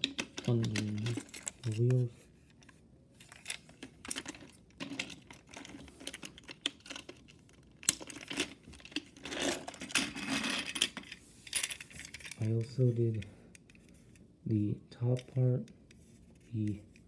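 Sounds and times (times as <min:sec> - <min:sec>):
plastic rubbing and scraping: 0:00.0 - 0:11.2.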